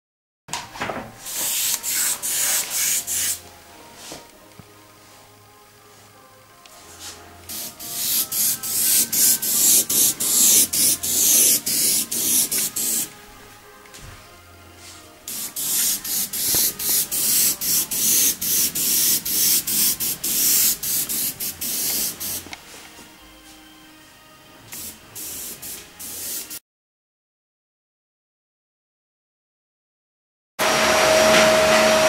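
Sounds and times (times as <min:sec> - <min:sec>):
airbrush hissing in short bursts: 0:01.3 - 0:03.4, 0:07.0 - 0:13.1, 0:15.3 - 0:22.5, 0:24.8 - 0:26.6.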